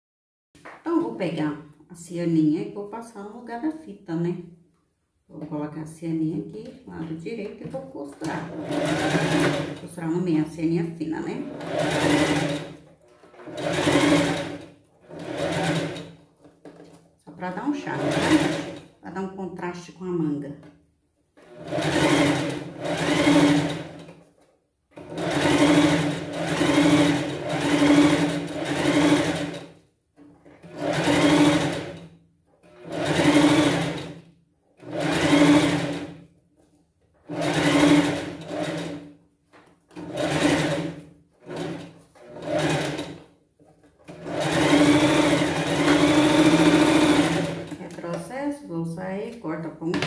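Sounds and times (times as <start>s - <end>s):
sewing machine stitching: 8.2s - 10.1s, 11.2s - 17.0s, 17.8s - 19.0s, 21.4s - 34.2s, 34.8s - 36.3s, 37.2s - 48.2s.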